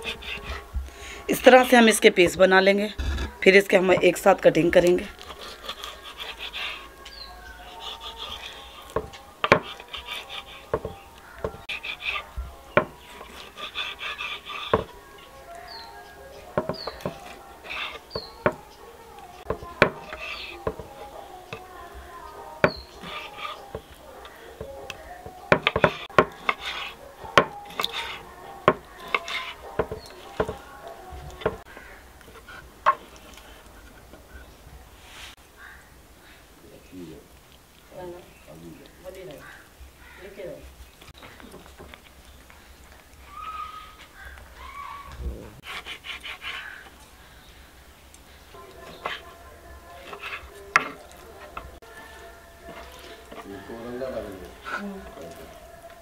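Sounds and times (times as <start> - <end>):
knife slicing meat: 0.0 - 0.7, 5.1 - 15.9, 19.3 - 21.7, 22.4 - 31.7, 45.6 - 46.9, 48.6 - 52.0, 52.6 - 55.5
faint scraping: 5.0 - 35.4, 41.1 - 56.0
knife knocking on wooden board: 9.0 - 9.7, 10.7 - 11.6, 12.8 - 13.0, 14.7 - 14.9, 16.6 - 17.3, 19.5 - 20.9, 24.6 - 26.6, 27.4 - 27.6, 28.6 - 30.6.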